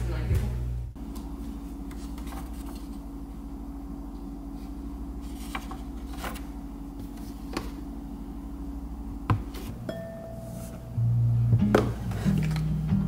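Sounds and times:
electrical hum: 0.0 - 13.0
paper rustling and clicks: 5.3 - 6.5.

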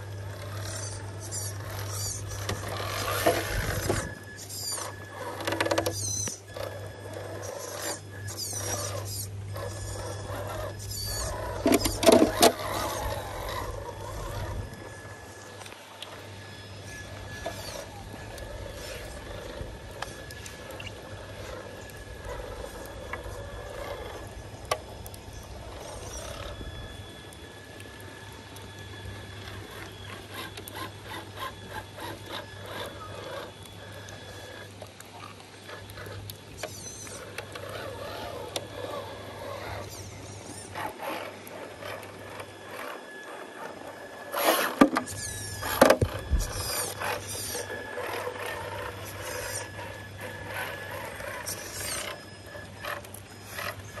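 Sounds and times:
electric motor and drivetrain whining: 0.0 - 54.0.

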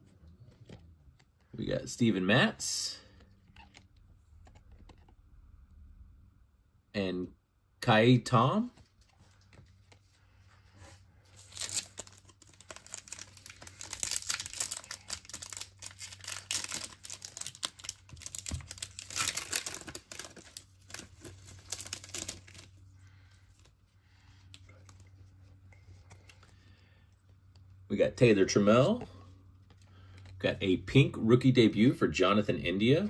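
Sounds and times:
wrapper tearing and crinkling: 11.4 - 22.8.

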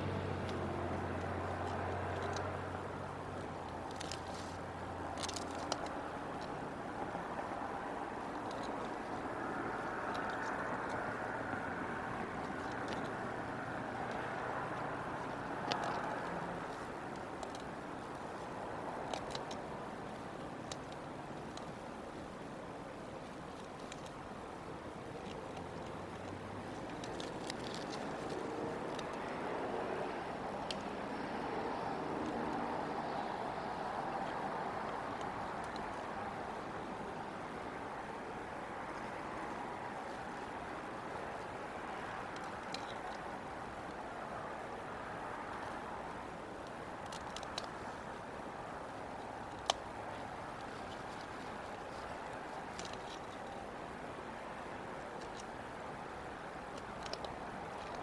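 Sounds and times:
vehicle passing: 0.0 - 5.6, 25.6 - 43.1
outdoor background noise: 0.0 - 58.0
faint clicks: 0.4 - 58.0.

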